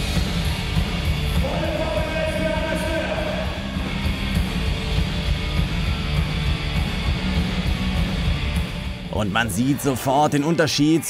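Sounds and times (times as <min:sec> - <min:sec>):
live rock band playing: 0:00.0 - 0:09.1.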